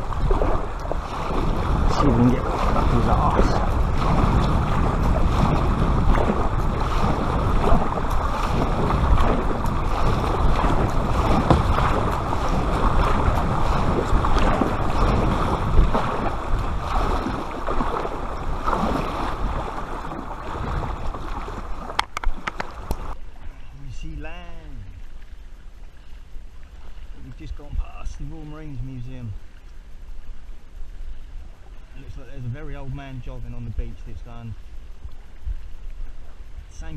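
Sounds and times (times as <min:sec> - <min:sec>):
wind buffeting microphone: 0:00.0 - 0:23.2
water splashing along kayak hull: 0:00.0 - 0:36.9.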